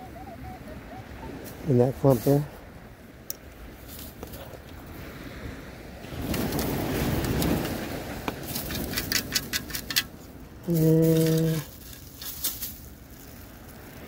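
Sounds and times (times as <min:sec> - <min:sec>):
sand and shells rattling in scoop: 0:06.1 - 0:14.0.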